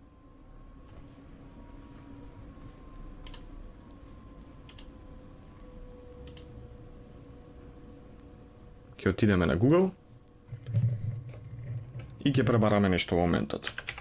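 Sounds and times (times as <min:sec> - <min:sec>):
low electrical hum: 0:00.0 - 0:14.0
computer mouse clicks: 0:03.2 - 0:03.5, 0:04.6 - 0:04.9, 0:06.2 - 0:06.5.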